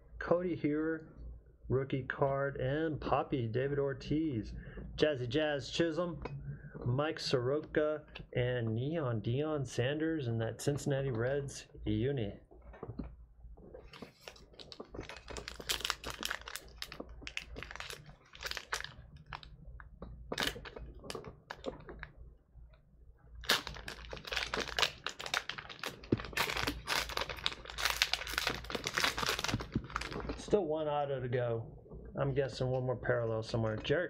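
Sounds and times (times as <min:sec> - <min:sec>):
card pack wrapper crinkling and tearing: 0:13.9 - 0:19.5, 0:20.3 - 0:22.1, 0:23.4 - 0:30.4.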